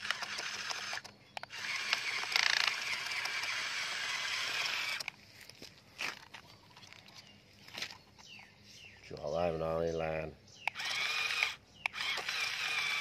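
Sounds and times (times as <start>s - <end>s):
scattered plastic clicks: 0.0s - 5.2s, 10.6s - 13.0s
plastic toy trucks rattling on dirt: 0.0s - 8.4s, 10.8s - 13.0s.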